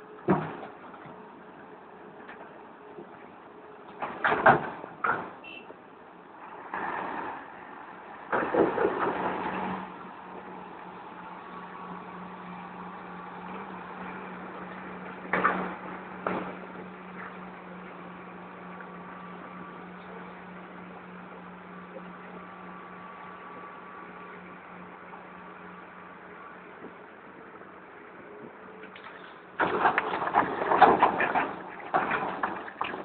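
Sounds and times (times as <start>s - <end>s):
diesel machinery humming: 0.0s - 33.0s
rocks crashing into truck body: 29.6s - 33.0s.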